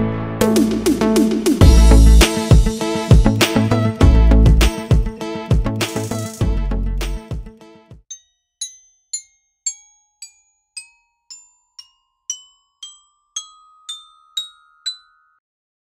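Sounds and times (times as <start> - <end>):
bell-like mallet percussion jingle: 8.0 - 15.4.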